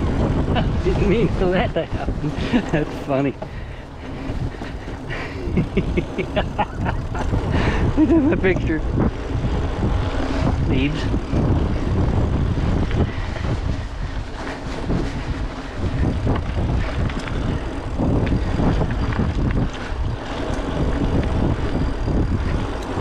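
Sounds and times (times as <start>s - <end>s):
bike tyres on dirt trail: 0.0s - 23.0s
wind buffeting microphone: 0.0s - 23.0s.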